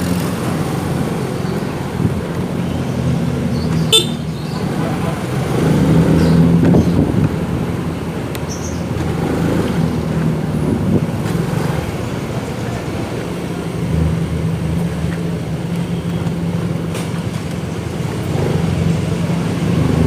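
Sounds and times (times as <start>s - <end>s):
motorcycle engine running: 0.0s - 5.5s
street traffic hum: 0.0s - 20.0s.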